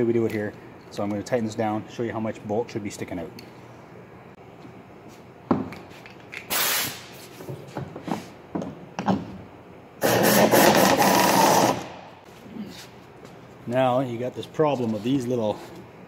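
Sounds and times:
exhaust air hissing: 0:06.5 - 0:07.4
air-powered driver running: 0:10.0 - 0:12.2.

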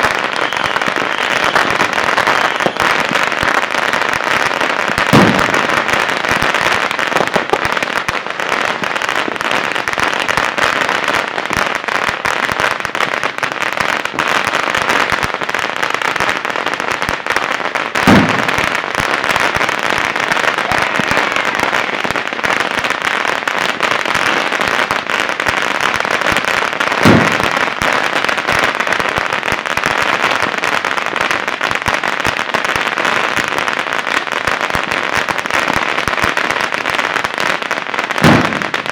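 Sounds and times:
firecrackers crackling: 0:00.0 - 0:38.9
loud firecracker bang: 0:05.0 - 0:05.9, 0:18.0 - 0:18.8, 0:27.0 - 0:27.6, 0:38.2 - 0:38.9.

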